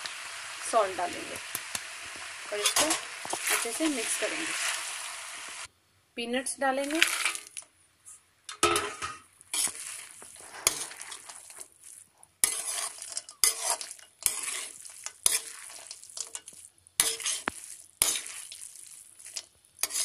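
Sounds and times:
food sizzling: 0.0s - 5.7s, 6.7s - 7.7s, 8.6s - 20.0s
spatula scraping metal pan: 2.5s - 4.9s, 8.6s - 11.8s, 12.4s - 20.0s.

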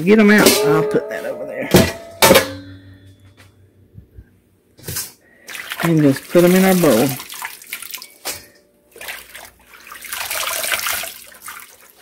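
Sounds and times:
water splashing and dripping: 5.4s - 12.0s.

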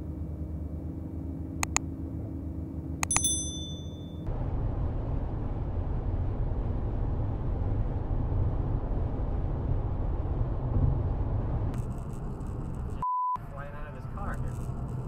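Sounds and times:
car engine and tyres rumbling: 0.0s - 15.0s.

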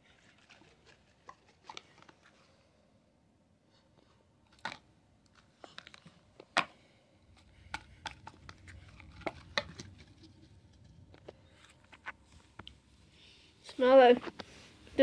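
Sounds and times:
plastic clicks and crackles: 4.5s - 6.8s.

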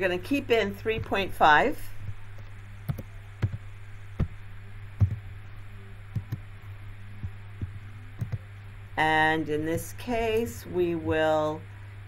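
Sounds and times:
low electrical hum: 0.0s - 12.0s
keyboard keys clicking: 2.4s - 3.6s, 5.0s - 5.2s, 6.1s - 6.4s, 7.6s - 8.4s.

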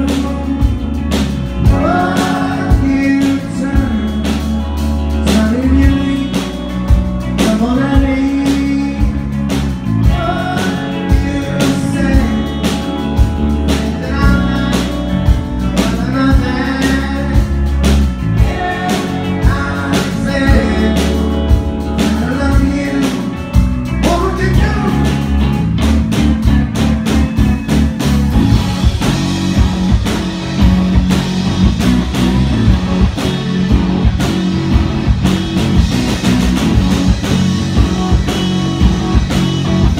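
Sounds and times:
lead vocal singing: 0.0s - 25.4s
rock band playing live: 0.0s - 39.9s.

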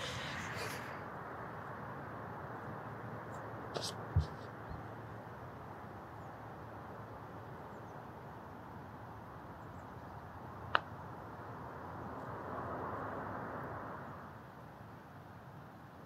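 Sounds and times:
steady background noise: 0.0s - 12.4s.

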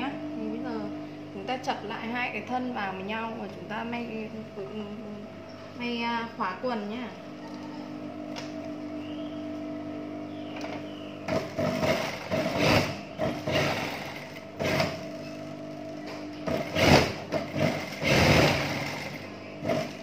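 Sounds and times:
steady hum: 0.0s - 20.0s
sewing machine stitching: 11.3s - 15.1s, 16.5s - 20.0s.

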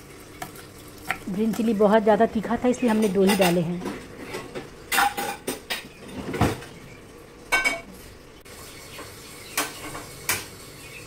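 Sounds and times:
metal utensils and pan clinking: 2.8s - 6.6s, 7.5s - 7.9s.

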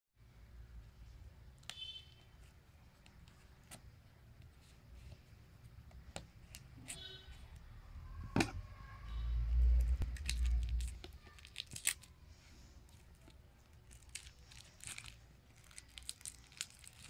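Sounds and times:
plastic wrap crinkling: 10.0s - 17.0s.

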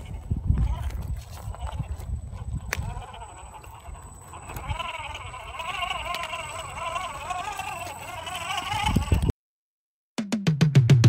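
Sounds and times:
wind on microphone: 0.0s - 6.0s, 8.6s - 9.3s
electric motor and gears whining: 0.0s - 9.3s.

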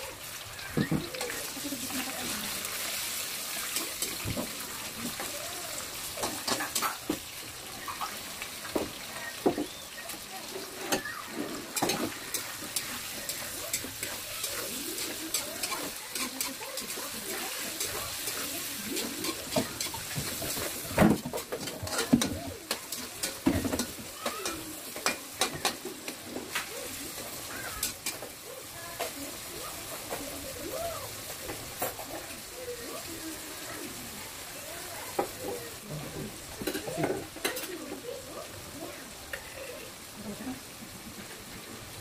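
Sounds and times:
food sizzling in a frying pan: 0.0s - 42.0s
spatula scraping a pan: 10.6s - 28.4s.

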